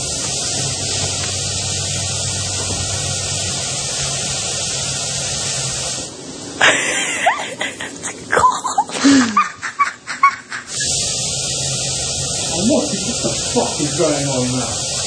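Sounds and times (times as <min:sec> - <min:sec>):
shower spray hissing: 0:00.0 - 0:15.0
person crying out and laughing: 0:06.6 - 0:10.8.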